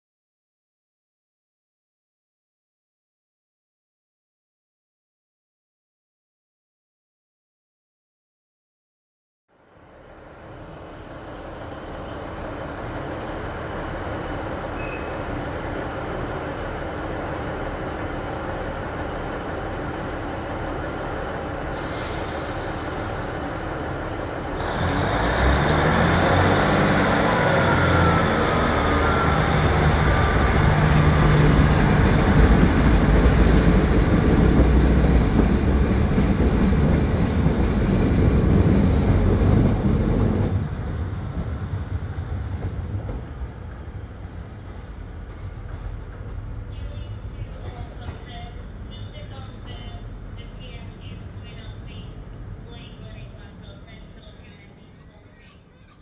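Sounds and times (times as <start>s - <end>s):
train rumbling past: 9.6s - 56.0s
faint gliding squeals: 14.7s - 15.3s, 43.6s - 45.2s.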